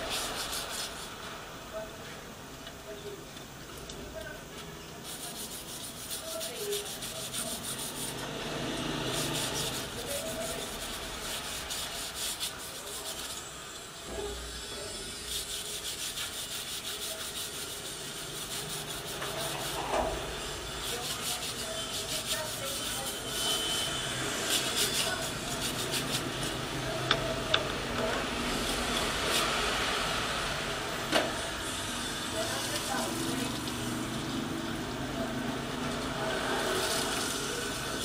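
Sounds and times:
hand sanding on plastic: 0.0s - 1.2s, 5.0s - 8.3s, 8.9s - 13.4s, 15.2s - 19.9s, 20.6s - 26.6s.

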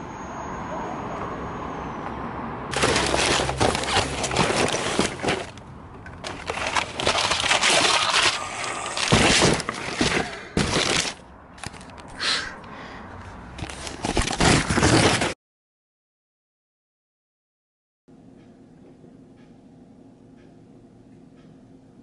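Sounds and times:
paper and cardboard rustling: 2.7s - 5.6s, 6.2s - 11.9s, 13.6s - 15.4s.

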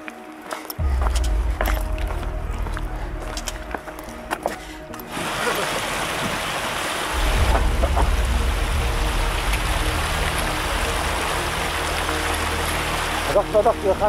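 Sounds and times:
steady rushing outdoor noise: 0.0s - 14.0s
wind buffeting microphone: 6.0s - 11.9s.

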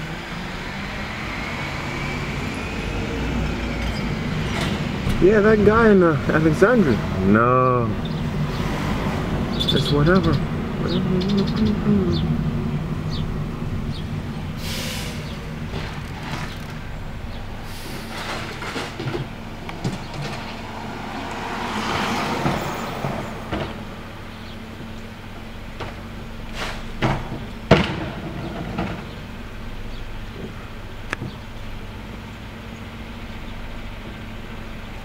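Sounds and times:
diesel engine idling: 0.0s - 35.0s
hiss: 14.6s - 15.4s
sharp bangs of trash cart: 27.0s - 29.3s.

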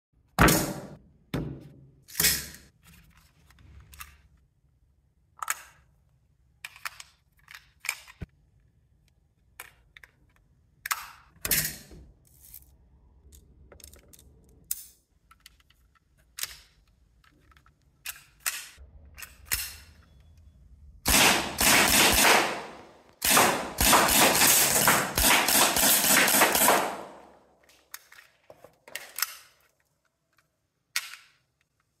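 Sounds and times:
rapid-fire pistol shots: 21.1s - 27.4s.

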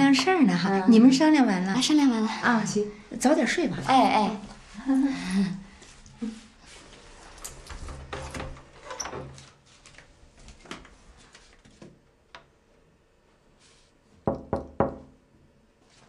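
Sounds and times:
sharp knocks on wooden door: 14.2s - 15.2s.

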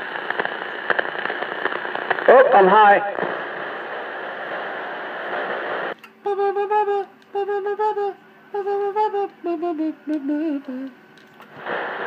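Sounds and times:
person humming a tune: 6.1s - 11.0s.

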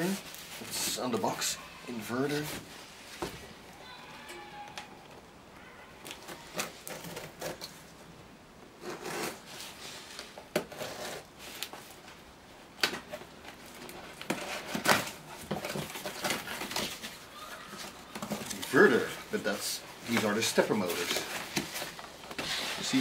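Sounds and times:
cardboard rubbing and scraping: 8.8s - 11.6s, 14.0s - 23.0s.

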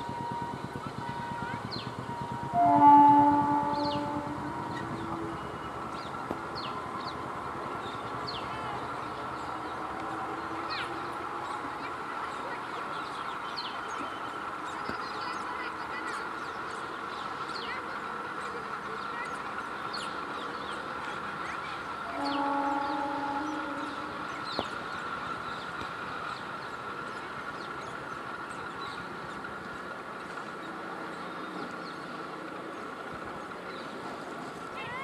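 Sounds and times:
electric train running hum: 0.0s - 35.0s.

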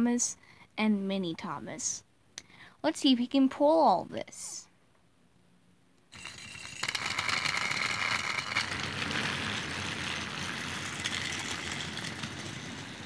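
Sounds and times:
toy train motor whirring: 6.1s - 13.0s.

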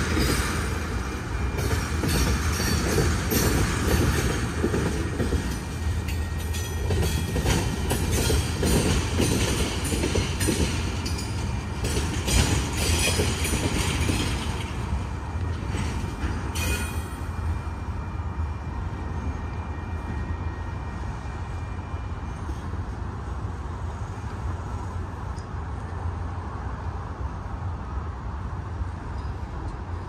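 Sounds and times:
wheels clacking over rail joints: 0.0s - 17.4s
freight train rumbling past: 0.0s - 30.0s.

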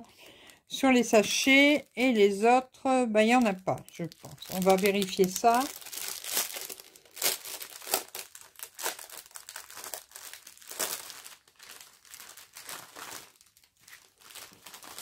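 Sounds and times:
plastic bags crinkling: 3.3s - 15.0s.

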